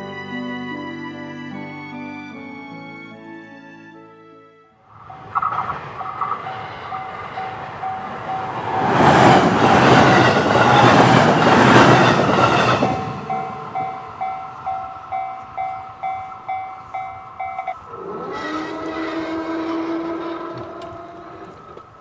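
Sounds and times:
electric train passing: 4.8 - 22.0
level crossing warning bell: 4.9 - 18.3.

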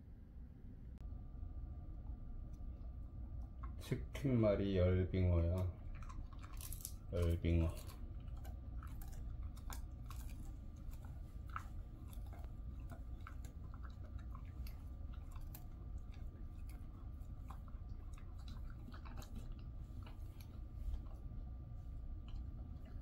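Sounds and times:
steady low hum: 0.0 - 23.0
dog crunching a hard treat: 5.4 - 21.6.

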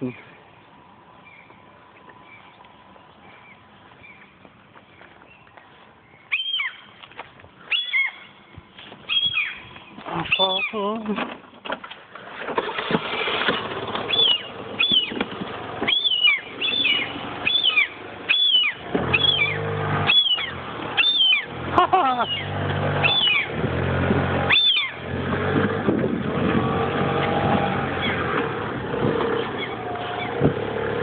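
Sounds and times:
gull yelping calls: 6.3 - 6.8, 7.7 - 8.3, 9.1 - 10.8, 14.1 - 15.2, 15.8 - 21.5, 22.1 - 23.6, 24.5 - 25.0.

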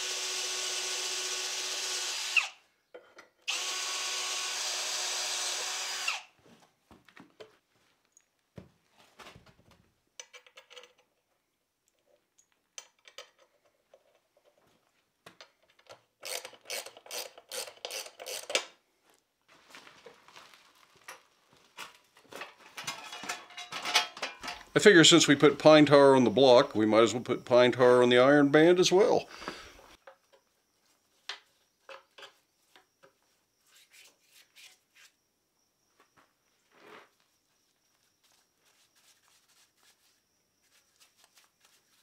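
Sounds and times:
cordless drill boring through metal: 0.0 - 2.6, 3.5 - 6.3, 16.2 - 18.6.

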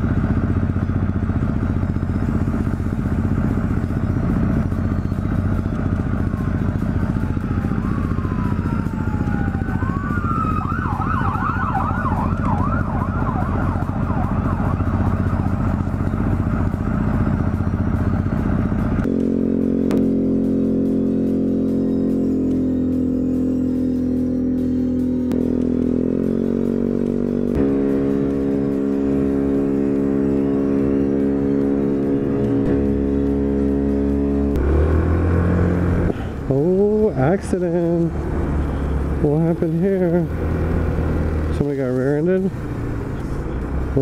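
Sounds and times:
scooter engine idling: 0.0 - 9.5, 13.9 - 19.1
distant siren wailing and yelping: 4.0 - 18.9
music: 13.6 - 35.9.

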